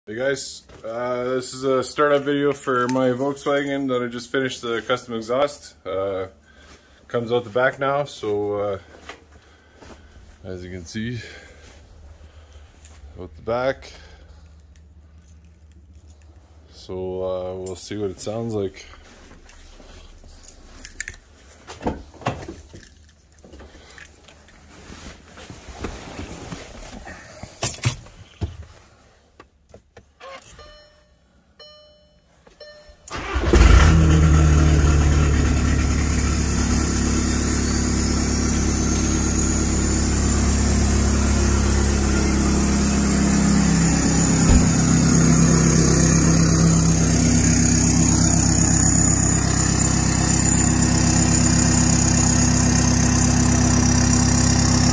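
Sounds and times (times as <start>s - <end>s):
handling noises: 18.8s - 30.8s, 42.7s - 47.6s
diesel engine idling: 33.1s - 54.9s.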